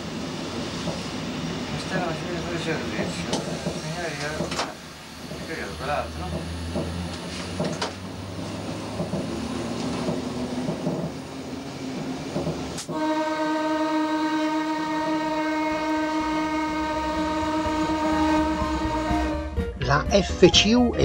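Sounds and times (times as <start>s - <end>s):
electric railcar running on track: 0.0s - 19.5s
train horn steady tone: 12.8s - 19.7s.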